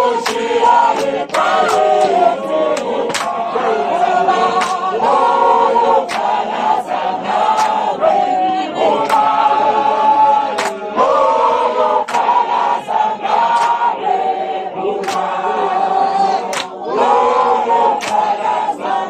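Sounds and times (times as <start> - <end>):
sharp clap-like hits: 0.0 - 5.2, 5.8 - 8.0, 8.9 - 9.6, 10.4 - 14.0, 15.0 - 15.7, 16.3 - 18.6
choir singing in harmony: 0.0 - 19.0.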